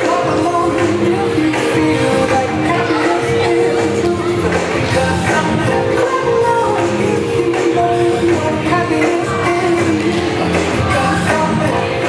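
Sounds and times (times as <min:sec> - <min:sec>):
cheerleading music over loudspeakers: 0:00.0 - 0:12.0.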